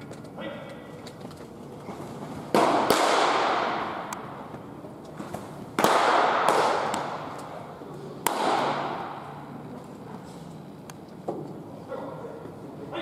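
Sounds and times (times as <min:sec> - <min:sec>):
baseballs smacking into mitts: 0:02.5 - 0:04.2, 0:05.2 - 0:07.6, 0:08.2 - 0:09.2.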